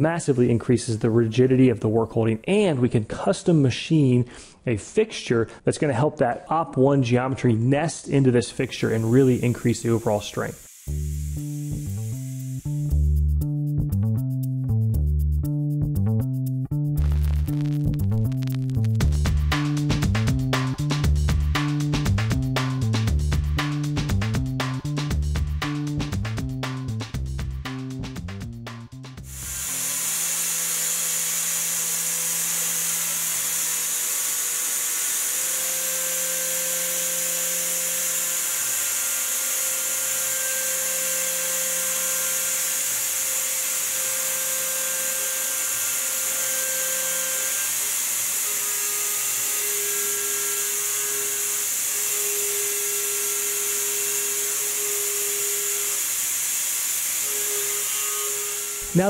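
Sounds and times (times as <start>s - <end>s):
mill spindle cutting metal: 8.6s - 13.0s, 29.3s - 59.0s
compressed air hiss: 8.6s - 13.1s, 29.3s - 31.5s.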